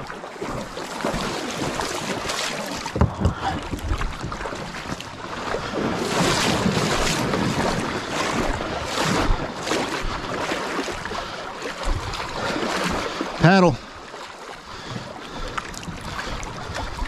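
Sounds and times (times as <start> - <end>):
paddle strokes splashing: 0.0 - 17.0
water rushing along hull: 0.0 - 17.0
wind on microphone: 1.2 - 11.2.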